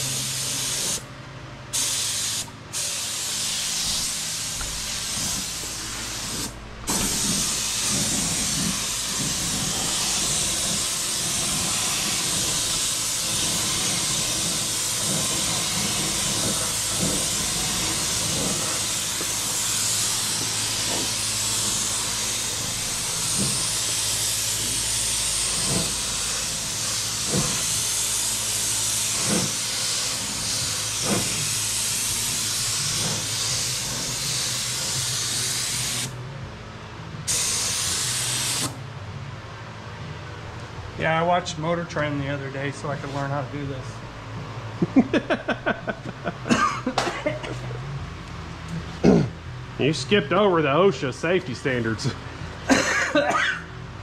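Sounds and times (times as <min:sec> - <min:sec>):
paint spray gun hissing: 0:00.0 - 0:01.0, 0:01.7 - 0:36.2, 0:37.3 - 0:38.8.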